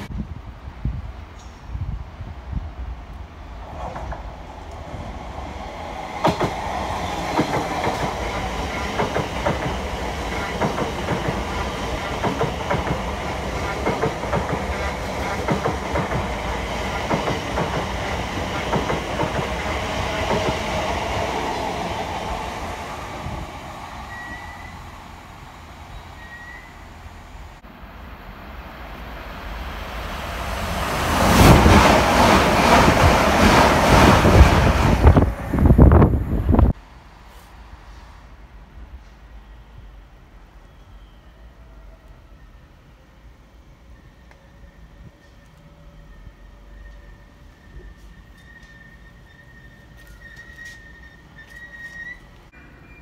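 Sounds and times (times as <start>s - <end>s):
wind buffeting microphone: 0.0s - 24.0s, 30.6s - 36.8s
electric train passing close: 2.8s - 36.8s, 37.7s - 53.0s
electric train wheels clicking: 3.8s - 22.7s.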